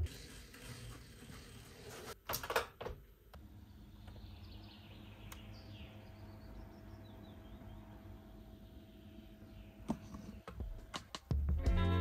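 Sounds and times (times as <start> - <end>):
window blind rattling: 0.0 - 2.7
faint birds chirping: 3.2 - 10.9.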